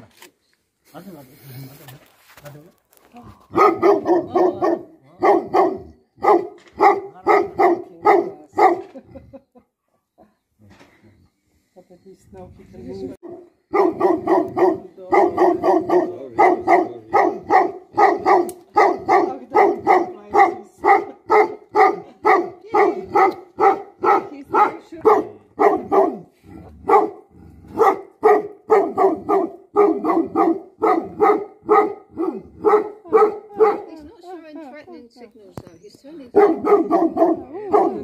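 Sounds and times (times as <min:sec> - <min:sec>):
dog barking: 0:03.5 - 0:09.0, 0:13.2 - 0:34.0, 0:36.3 - 0:38.0.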